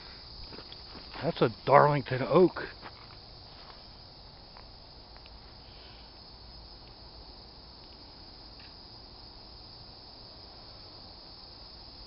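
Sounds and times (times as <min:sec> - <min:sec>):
crickets chirping: 0:00.0 - 0:12.0
light ticks: 0:04.5 - 0:05.4, 0:07.8 - 0:08.8.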